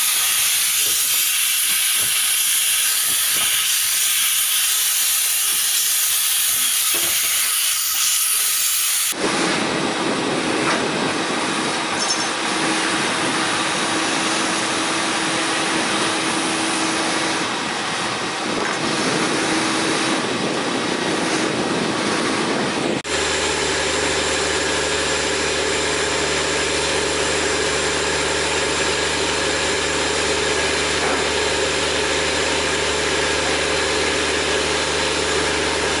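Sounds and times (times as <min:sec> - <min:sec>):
hissing machine noise: 0:00.0 - 0:36.0
engine idling: 0:23.1 - 0:36.0.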